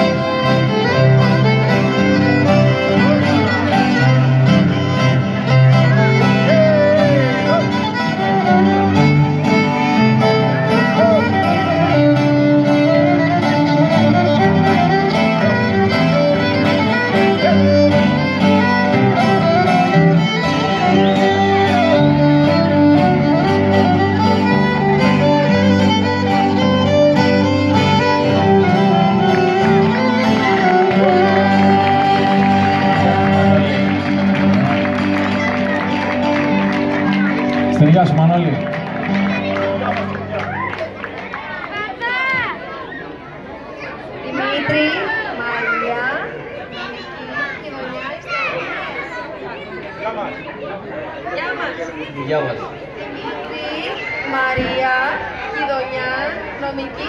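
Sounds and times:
live band playing dance music: 0:00.0 - 0:40.4
violin melody: 0:00.0 - 0:41.2.

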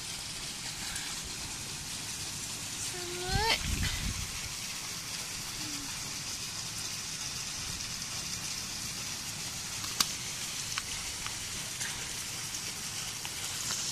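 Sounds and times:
steady high hiss: 0:00.0 - 0:13.9
sharp ticks: 0:06.8 - 0:13.9.

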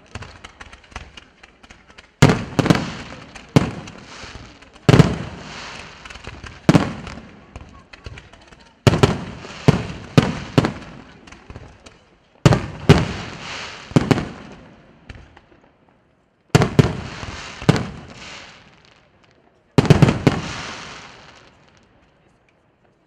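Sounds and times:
firework crackle: 0:00.0 - 0:22.3
firework booms: 0:02.2 - 0:15.8, 0:16.5 - 0:19.2, 0:19.8 - 0:21.8.

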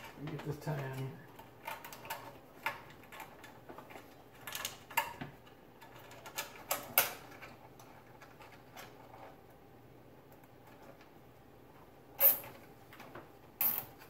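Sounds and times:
wires being handled: 0:00.0 - 0:09.6.

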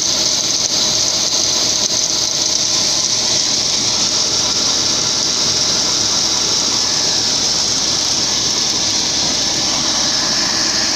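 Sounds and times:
diesel engine and auger drone: 0:00.0 - 0:10.9
grain pouring hiss: 0:00.1 - 0:10.9.

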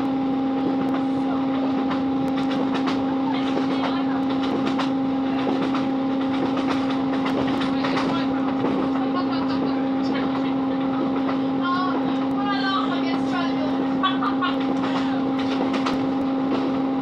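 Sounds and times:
train diesel engine drone: 0:00.0 - 0:17.0
wheels clicking over rail joints: 0:01.8 - 0:13.7, 0:14.5 - 0:16.8.

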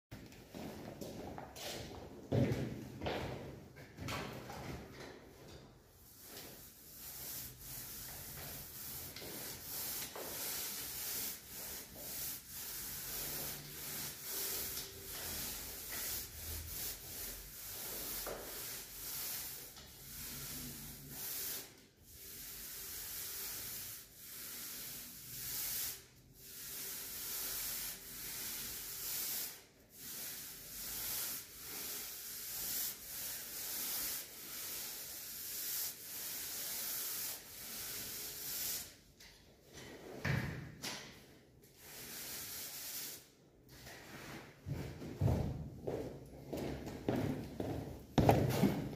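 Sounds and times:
paint roller hissing on wall: 0:04.6 - 0:39.1, 0:41.0 - 0:45.3.

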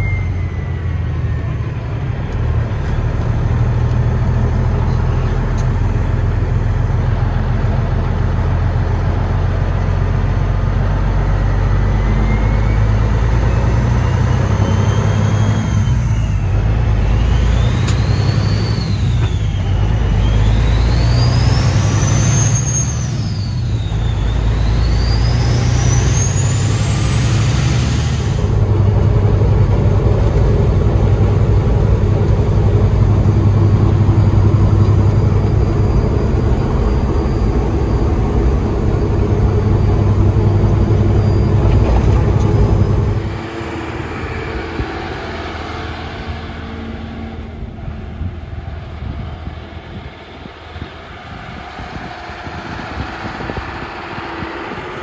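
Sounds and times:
turbo whistle: 0:00.0 - 0:01.5
tractor engine: 0:00.0 - 0:55.0
truck diesel engine from cab: 0:00.0 - 0:55.0.

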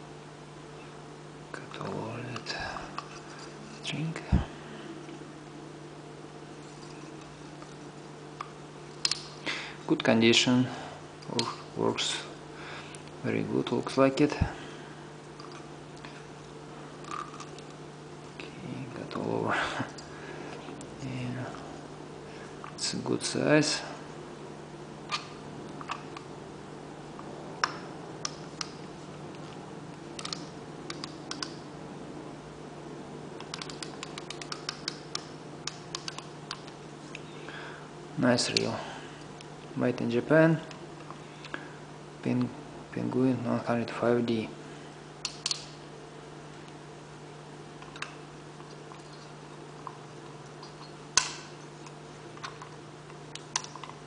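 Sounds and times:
sharp metallic click: 0:45.2 - 0:45.8.

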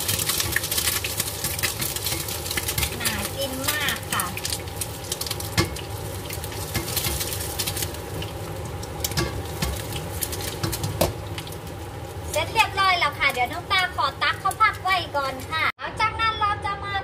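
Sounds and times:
egg sizzling in hot oil: 0:00.0 - 0:15.7.

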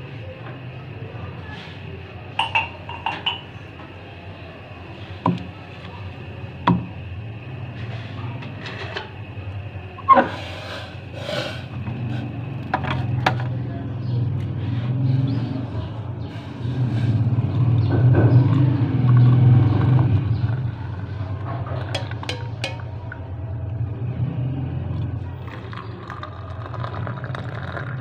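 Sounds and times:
ceramic mugs clunking on table: 0:02.4 - 0:03.6, 0:22.0 - 0:22.9.

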